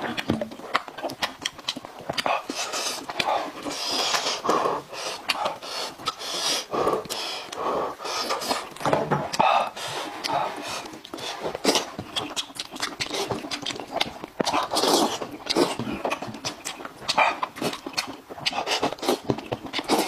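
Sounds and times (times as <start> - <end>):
person panting breaths: 2.2 - 12.0.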